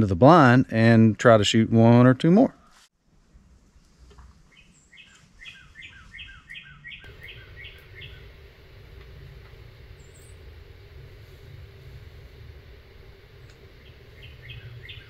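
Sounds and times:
faint outdoor background noise: 0:00.0 - 0:15.0
songbird singing repeated notes: 0:04.5 - 0:10.6, 0:11.7 - 0:15.0
high bird chirp: 0:04.6 - 0:08.3, 0:13.8 - 0:15.0.

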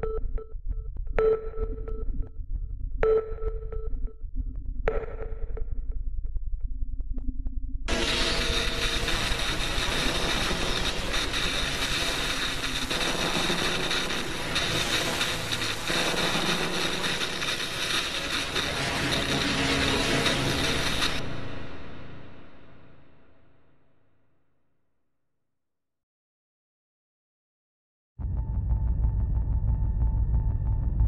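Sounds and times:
electronic noise: 0:07.9 - 0:23.2.

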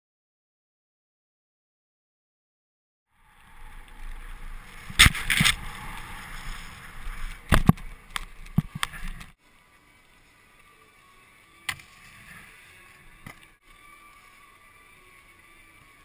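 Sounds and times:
wind and snowboard rushing on snow: 0:03.2 - 0:09.4.

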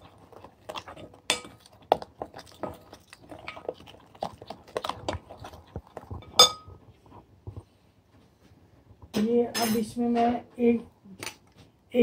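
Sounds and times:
spoon scraping glass bowl: 0:06.1 - 0:06.8
spoon clinking on glass: 0:06.4 - 0:06.7.

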